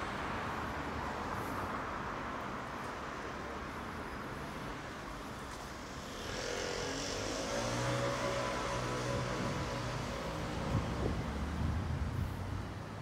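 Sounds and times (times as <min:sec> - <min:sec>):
city street traffic: 0:00.0 - 0:13.0.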